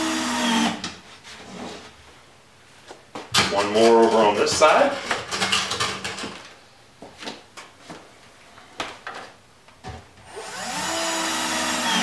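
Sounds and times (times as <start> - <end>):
power drill driving screw: 0.0 - 0.8, 10.3 - 12.0.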